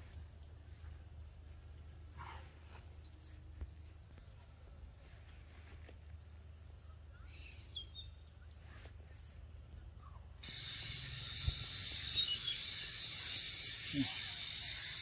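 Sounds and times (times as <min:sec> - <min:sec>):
high insect trill: 0:00.0 - 0:15.0
short bird chirps: 0:07.1 - 0:09.4, 0:10.0 - 0:15.0.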